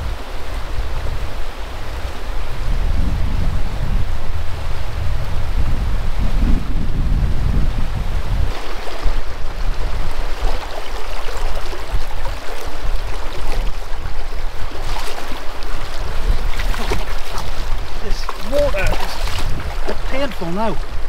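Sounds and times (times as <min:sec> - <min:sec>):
wind buffeting microphone: 0:00.0 - 0:21.0
river water rushing over stones: 0:08.2 - 0:21.0
splashing footsteps in water: 0:10.0 - 0:20.8.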